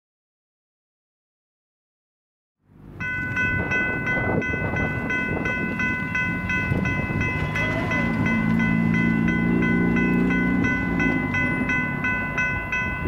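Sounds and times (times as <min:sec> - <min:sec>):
crossing warning bell ringing: 0:02.7 - 0:13.0.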